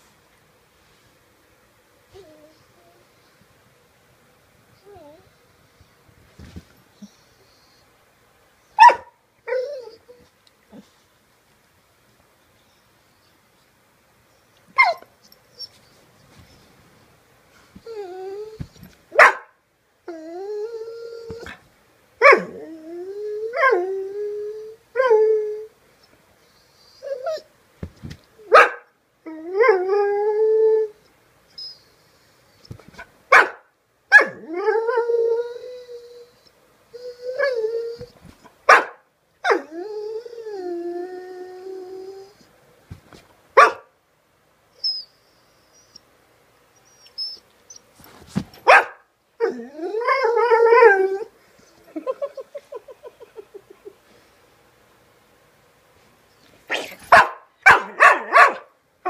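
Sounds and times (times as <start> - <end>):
dog barking: 8.8 - 9.2, 19.2 - 19.6, 28.5 - 28.9, 33.3 - 34.4, 38.7 - 39.6, 43.6 - 43.9, 48.6 - 49.1, 56.7 - 58.7
dog howl-whining: 9.5 - 10.3, 17.8 - 18.8, 20.1 - 21.6, 22.2 - 25.7, 26.6 - 27.5, 29.3 - 31.0, 34.1 - 38.2, 39.4 - 42.5, 49.4 - 51.4.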